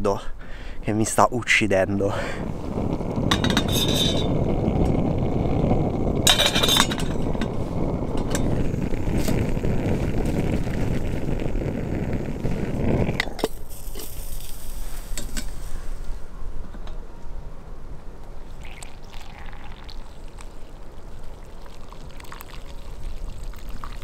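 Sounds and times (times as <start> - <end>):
steady low rumble: 0.0 - 13.9
metal kettle clinking: 3.3 - 4.3, 6.3 - 8.6.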